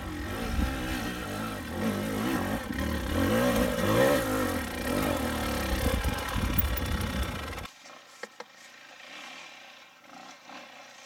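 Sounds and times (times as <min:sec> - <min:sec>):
dirt bike engine revving: 0:00.0 - 0:07.7.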